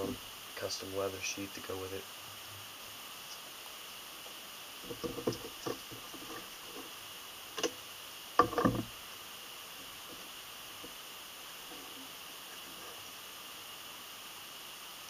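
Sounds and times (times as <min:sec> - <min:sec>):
bottle knocking on workbench: 0:08.4 - 0:08.9.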